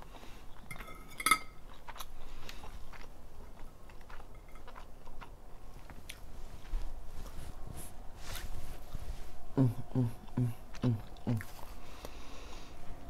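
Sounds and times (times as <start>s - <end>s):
soft chewing: 0.0s - 12.8s
fork clinking on a plate: 0.7s - 1.6s.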